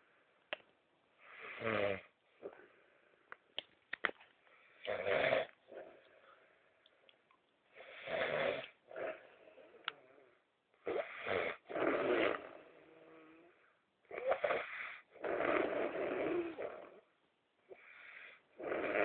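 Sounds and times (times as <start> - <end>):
man snoring: 1.4 - 2.1, 4.8 - 5.5, 7.8 - 9.7, 10.9 - 13.5, 14.1 - 17.0, 18.6 - 19.0.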